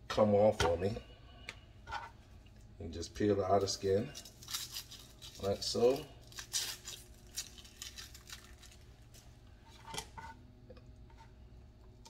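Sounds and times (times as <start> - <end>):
onion skin peeling crackles: 3.6 - 9.4.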